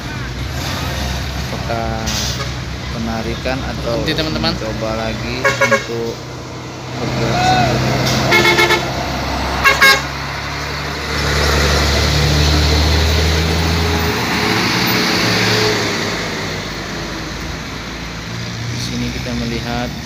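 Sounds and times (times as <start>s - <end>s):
heavy truck engine passing: 0.0s - 20.0s
road noise: 0.0s - 20.0s
vehicle horn toots: 5.4s - 6.0s, 8.3s - 8.9s, 9.6s - 10.1s.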